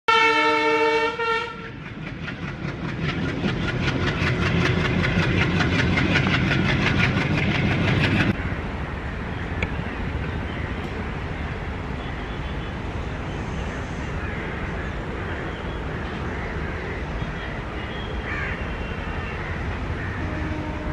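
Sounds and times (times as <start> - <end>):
train horn chord: 0.1 - 1.8, 20.1 - 20.9
diesel locomotive working hard: 0.1 - 20.9.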